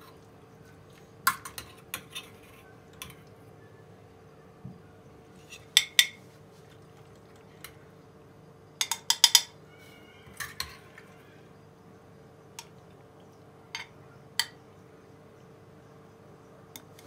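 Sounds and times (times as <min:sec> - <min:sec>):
metal spoon clinking on pot: 0:08.8 - 0:09.6, 0:10.4 - 0:10.8.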